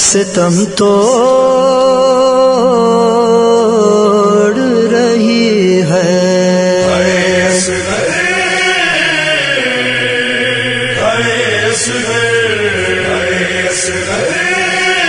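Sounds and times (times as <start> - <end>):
man chanting into microphones: 0.0 - 15.0
voices chanting along: 6.8 - 15.0.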